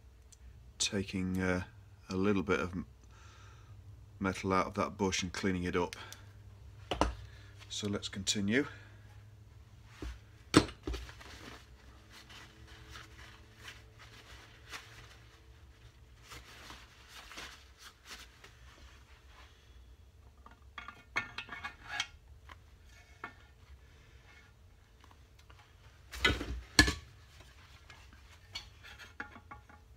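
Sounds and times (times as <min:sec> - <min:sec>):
metal clinks and scrapes: 0:20.7 - 0:22.2.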